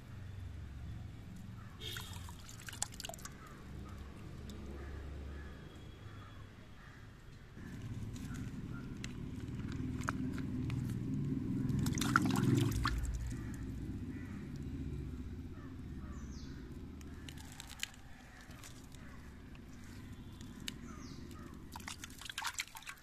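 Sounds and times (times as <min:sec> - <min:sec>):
hands splashing in muddy water: 0:01.8 - 0:03.5, 0:11.6 - 0:13.6, 0:17.0 - 0:23.0.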